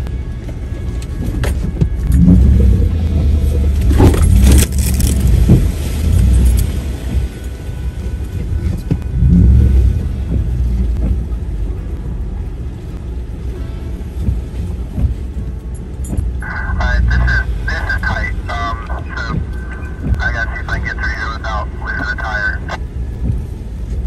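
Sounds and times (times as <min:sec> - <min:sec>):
vehicle engine rumbling: 0:00.0 - 0:24.0
vehicle splashing through mud: 0:01.4 - 0:20.4
cab rattles and knocks: 0:14.2 - 0:16.4.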